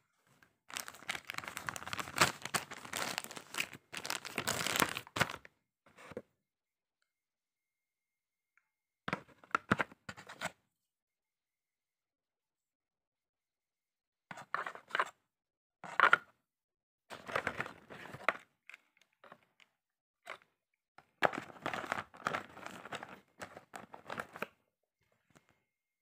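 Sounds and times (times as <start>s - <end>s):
packaging rustling and crinkling: 0.7s - 5.4s.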